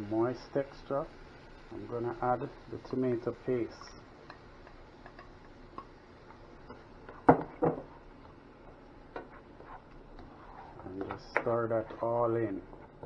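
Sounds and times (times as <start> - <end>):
spatula scraping a frying pan: 9.2 - 10.9.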